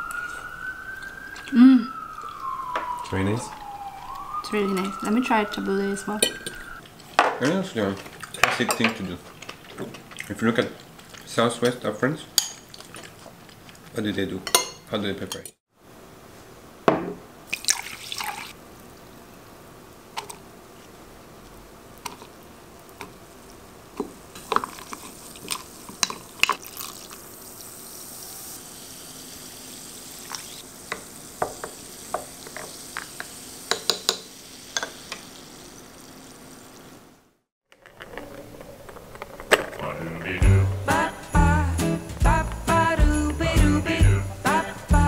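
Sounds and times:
sparkling water fizzing: 0.0s - 13.2s, 17.5s - 19.3s, 22.0s - 37.3s
liquid dripping: 0.0s - 14.0s, 17.5s - 19.1s, 22.0s - 27.3s
spoon clinking against glass: 14.5s - 15.5s.

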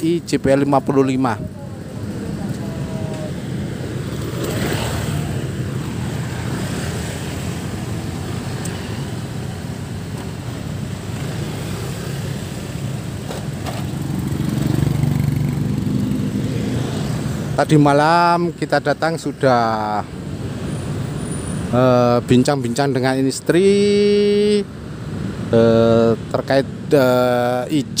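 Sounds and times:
small motorcycles passing: 0.4s - 9.8s, 10.8s - 17.6s.

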